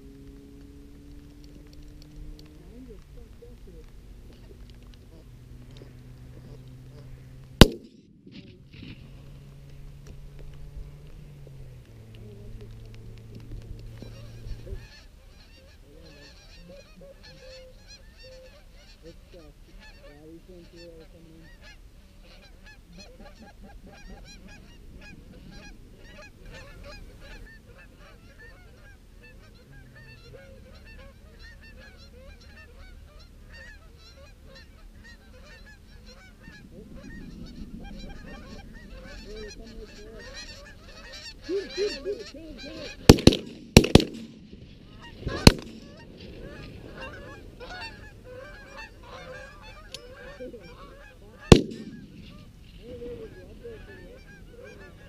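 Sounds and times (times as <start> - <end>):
geese honking: 0.6 - 55.0.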